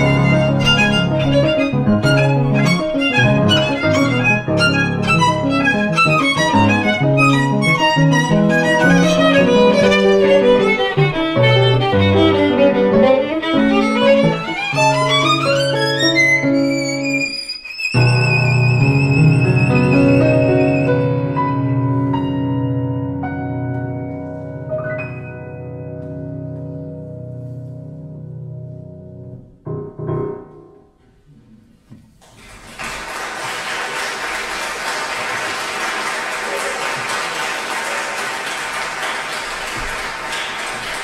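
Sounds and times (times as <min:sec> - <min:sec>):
violin playing: 0:00.0 - 0:21.6
piano playing: 0:00.0 - 0:31.3.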